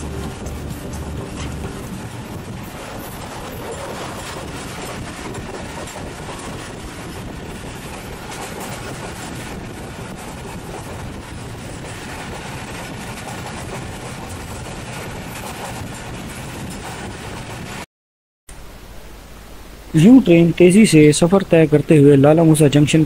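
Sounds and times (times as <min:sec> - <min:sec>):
train running on track: 0:00.0 - 0:17.9.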